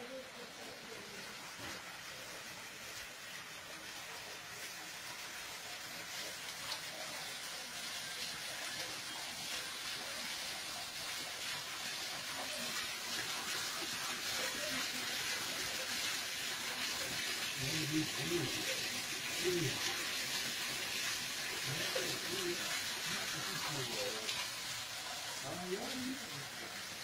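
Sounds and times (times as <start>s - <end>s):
water rushing through channel: 0.0s - 27.0s.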